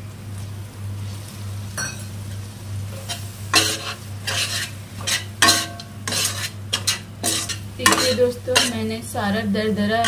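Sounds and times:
steady low hum: 0:00.0 - 0:10.0
sauce sizzling in a pan: 0:01.0 - 0:09.2
metal spatula scraping a pan: 0:03.0 - 0:08.8.

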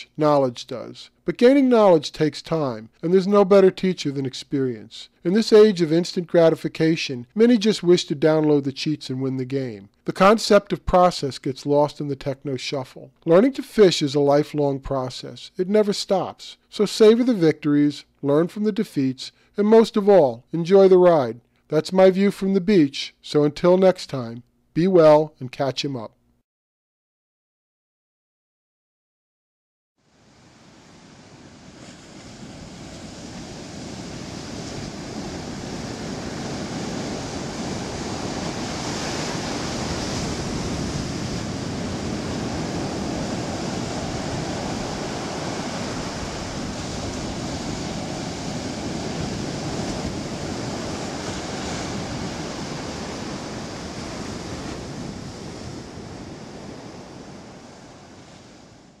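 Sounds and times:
waves breaking on a beach: 0:00.0 - 0:14.8, 0:30.0 - 0:59.0.

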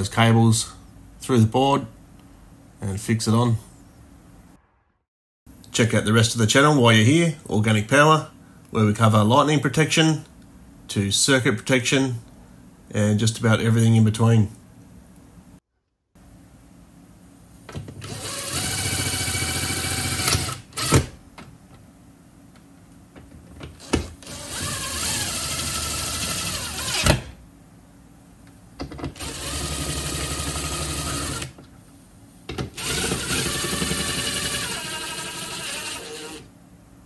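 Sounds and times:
cordless drill driving screws: 0:18.0 - 0:21.1, 0:23.8 - 0:27.3, 0:29.2 - 0:31.5, 0:32.8 - 0:36.5.

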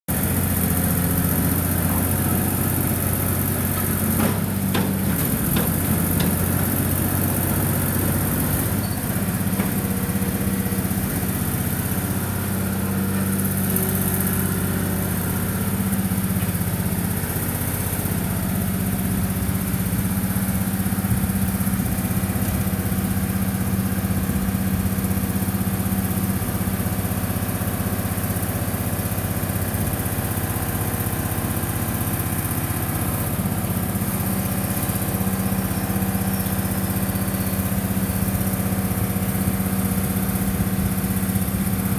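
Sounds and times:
excavator diesel engine running: 0:00.1 - 0:41.9.

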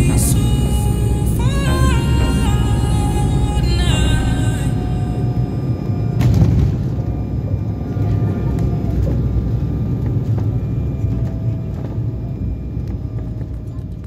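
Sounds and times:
faint music: 0:00.0 - 0:14.0.

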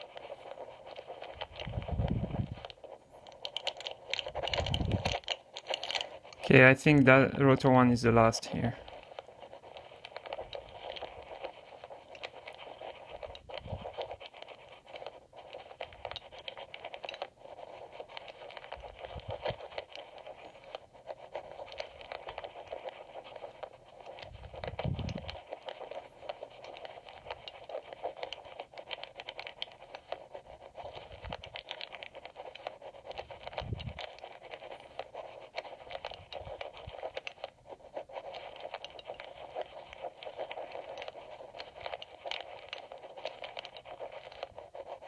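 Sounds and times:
lock pick scraping and clicking: 0:03.3 - 0:06.4.

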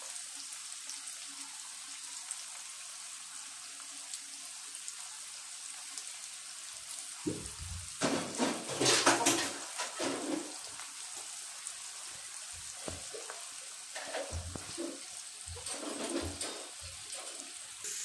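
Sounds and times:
onions sizzling in oil: 0:00.0 - 0:18.0
knocks and rustling: 0:07.3 - 0:10.7, 0:14.0 - 0:17.4.

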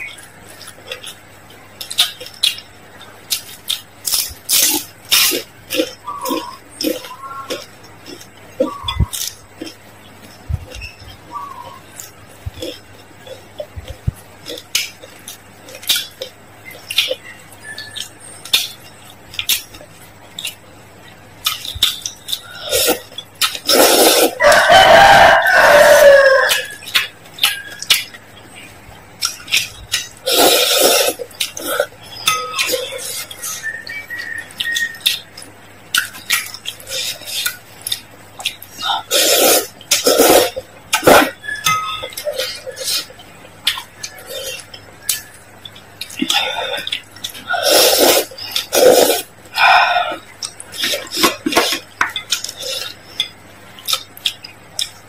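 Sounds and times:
wet chewing: 0:00.0 - 0:55.0
noodles slurped: 0:22.4 - 0:24.4, 0:29.9 - 0:31.9, 0:36.7 - 0:43.1, 0:46.0 - 0:53.0
mouth clicks: 0:26.4 - 0:55.0.

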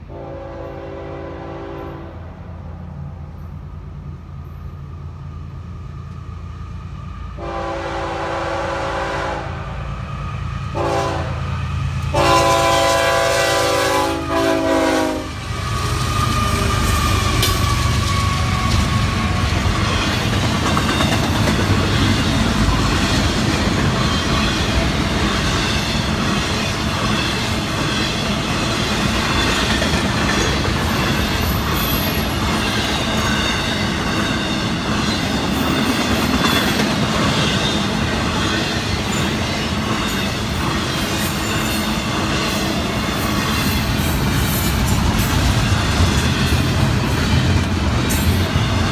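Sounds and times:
freight train cars rolling past: 0:00.0 - 0:48.9
locomotive horn blasts: 0:00.1 - 0:02.2, 0:07.4 - 0:09.8, 0:10.8 - 0:11.5, 0:12.1 - 0:15.4.

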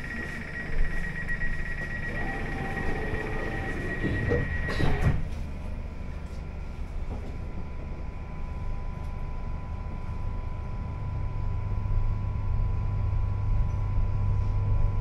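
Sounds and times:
door warning beeps: 0:00.0 - 0:05.3
faint steady whine: 0:00.0 - 0:15.0
train carriage hum: 0:00.0 - 0:15.0
sliding doors clunk shut: 0:02.2 - 0:05.4.

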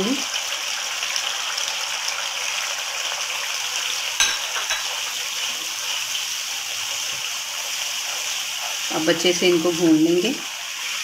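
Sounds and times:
spices sizzling in hot oil: 0:00.0 - 0:11.0
spatula stirring in wok: 0:04.2 - 0:11.0.

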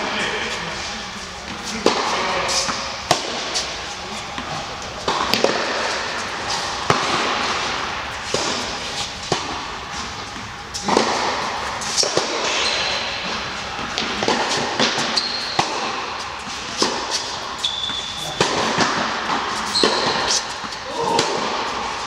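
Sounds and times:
tennis racket strikes: 0:01.5 - 0:03.8, 0:04.4 - 0:22.0
tennis ball bounces: 0:04.4 - 0:06.1
shoes squeaking on court: 0:11.8 - 0:20.8.

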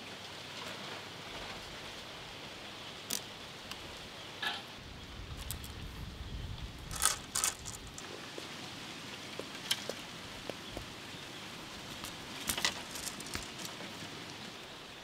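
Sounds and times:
soft steady hiss: 0:00.0 - 0:15.0
bamboo skewers clicking together: 0:06.9 - 0:08.0, 0:11.9 - 0:13.8.

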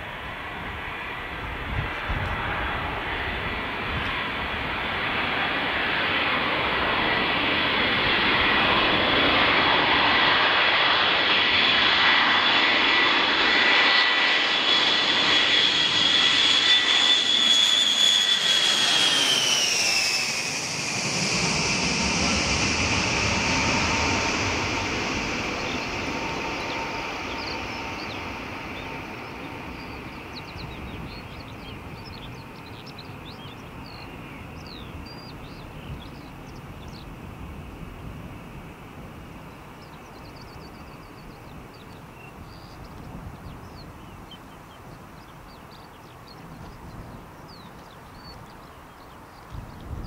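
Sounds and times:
jet engines passing overhead: 0:00.0 - 0:50.0
high engine whine: 0:00.1 - 0:33.0.

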